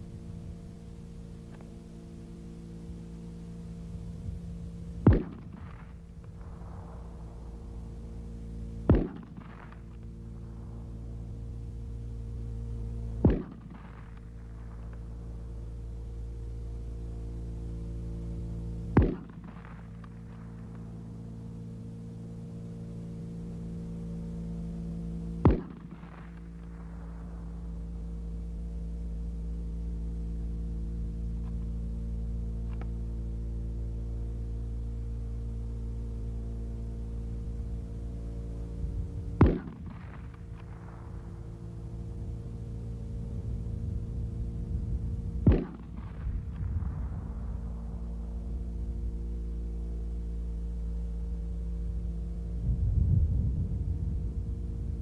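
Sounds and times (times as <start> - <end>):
low rumble: 0.0 - 55.0
steady hum: 0.0 - 55.0
rifle shot: 4.9 - 11.4, 13.2 - 15.6, 18.8 - 21.1, 24.8 - 27.9, 39.2 - 42.5, 45.4 - 48.6.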